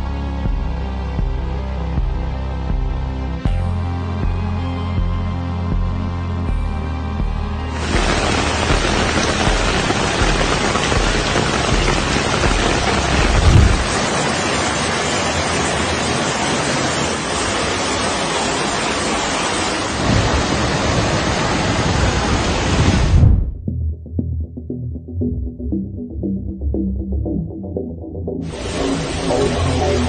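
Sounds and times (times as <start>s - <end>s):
heavy rain hiss: 7.8s - 23.1s, 28.5s - 30.0s
low thuds: 10.3s - 14.0s.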